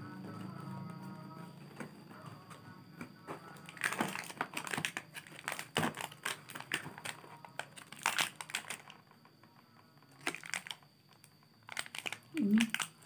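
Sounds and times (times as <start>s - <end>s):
plastic snack packet crinkling: 3.5s - 9.1s, 10.1s - 13.0s.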